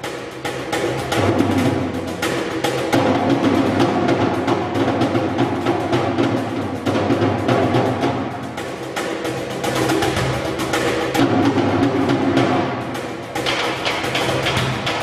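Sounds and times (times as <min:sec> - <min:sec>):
fast drumming: 0:00.0 - 0:15.0.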